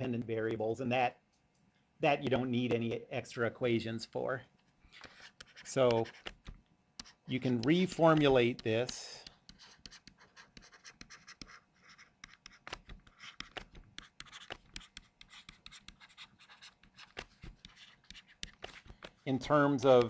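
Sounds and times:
stylus tapping and scratching screen: 4.9s - 20.0s.

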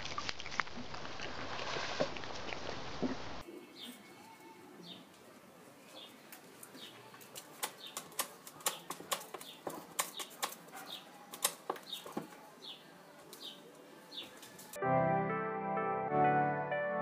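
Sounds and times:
bird chirping: 7.6s - 14.4s.

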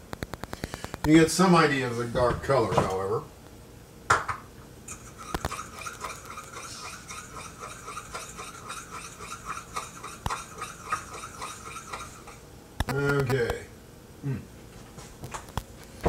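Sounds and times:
fork whisking in bowl: 4.9s - 12.4s.

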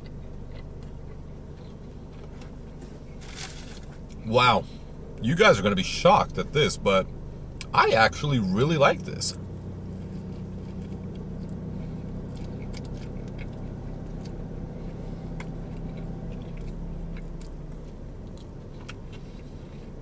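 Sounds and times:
man chewing crunchy bread: 0.0s - 4.2s, 9.6s - 20.0s
steady low hum: 0.0s - 20.0s.

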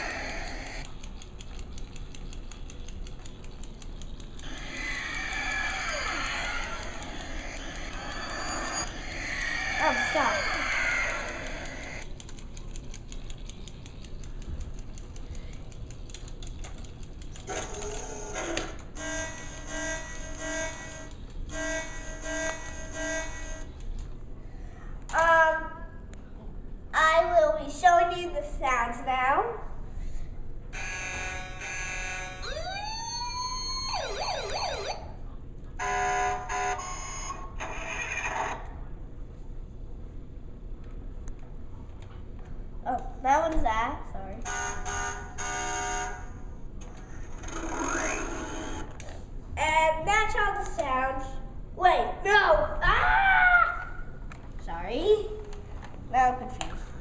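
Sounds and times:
toy helicopter rotor clicking: 0.0s - 24.1s
toy siren wailing and warbling: 4.4s - 12.0s, 30.8s - 35.1s
toy truck beeping horn tones: 18.4s - 23.7s, 30.8s - 32.5s, 35.8s - 37.4s, 44.5s - 46.3s.

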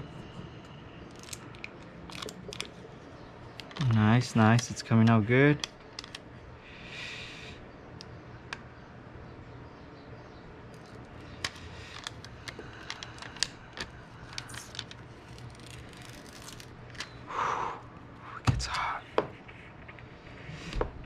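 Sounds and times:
faint low hum: 0.0s - 21.0s
tint film peeling crackles: 1.1s - 4.6s, 10.7s - 17.2s.

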